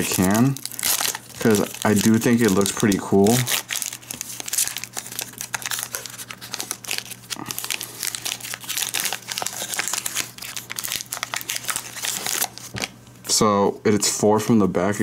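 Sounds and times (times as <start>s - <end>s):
foil wrapper crinkling and tearing: 0.0s - 13.0s.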